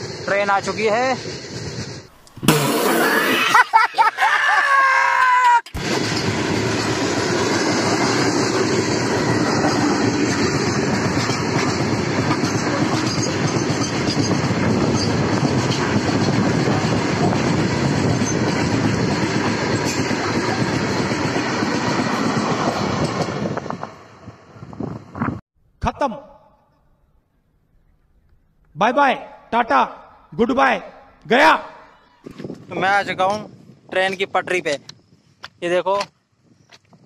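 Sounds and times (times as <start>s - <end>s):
train wheels on rails: 0.0s - 2.2s, 5.8s - 25.3s.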